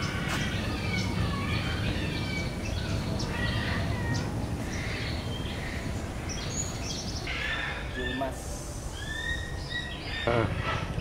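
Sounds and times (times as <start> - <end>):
birds calling: 0.0 - 11.0
low background rumble: 0.0 - 11.0.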